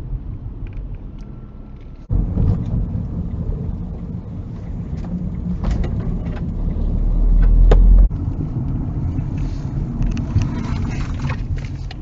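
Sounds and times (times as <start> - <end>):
car engine and road noise: 0.0 - 12.0
low rumble: 0.0 - 12.0.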